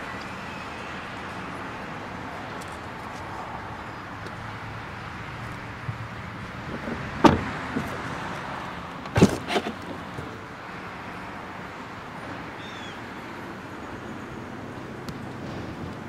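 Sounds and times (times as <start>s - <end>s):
car door shutting: 6.8s - 8.0s, 9.0s - 9.8s
car door handle unlatching: 7.2s - 7.9s, 9.0s - 9.9s.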